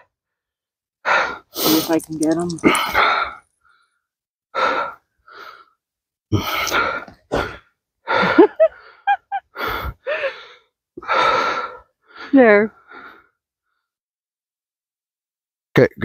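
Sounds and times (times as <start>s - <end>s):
person breathing in gasps: 8.2s - 11.9s.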